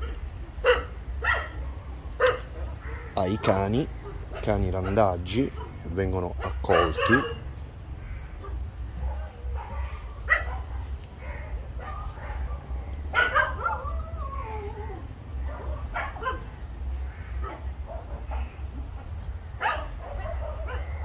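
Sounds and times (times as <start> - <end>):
dogs barking and yelping: 0.0 - 21.0
dog whining: 13.2 - 16.4.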